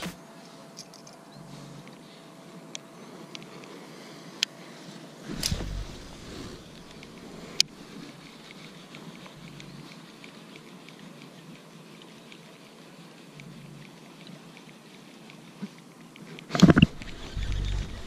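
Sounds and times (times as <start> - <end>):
fishing reel ticking: 5.4 - 18.0.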